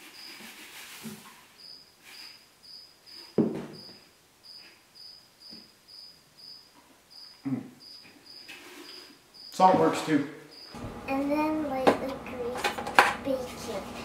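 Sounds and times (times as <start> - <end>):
cricket chirping: 0.0 - 0.4, 1.6 - 9.8, 10.4 - 10.8.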